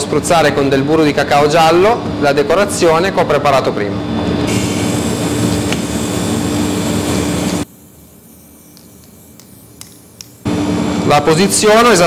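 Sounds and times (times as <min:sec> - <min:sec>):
sprayer hissing: 0:04.5 - 0:10.6.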